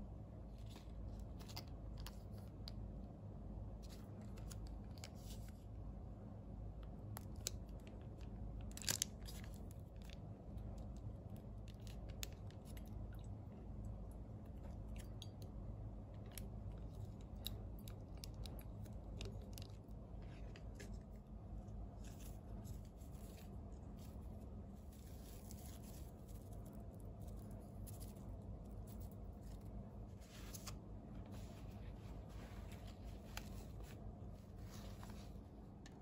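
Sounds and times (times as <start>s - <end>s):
low steady hum: 0.0s - 36.0s
plastic sachet crinkling: 7.2s - 13.0s.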